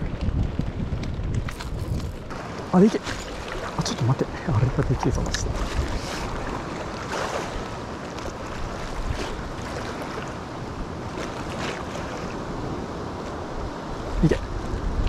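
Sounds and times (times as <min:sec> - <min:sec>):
storm wind gusting on microphone: 0:00.0 - 0:11.3, 0:12.0 - 0:15.0.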